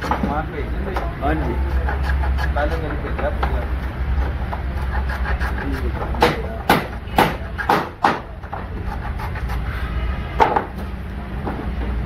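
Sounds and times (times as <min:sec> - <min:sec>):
wood block knocking on wood: 0:00.0 - 0:04.7, 0:06.0 - 0:08.7, 0:10.4 - 0:10.8.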